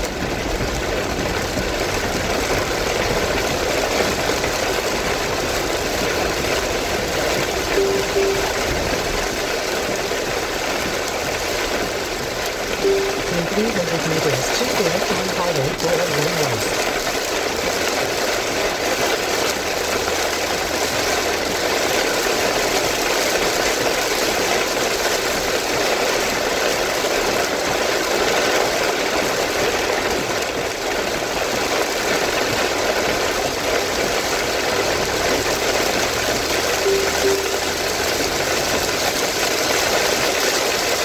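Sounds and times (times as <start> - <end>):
heavy rain on car roof: 0.0 - 41.0
tyre spray on wet road: 16.7 - 41.0.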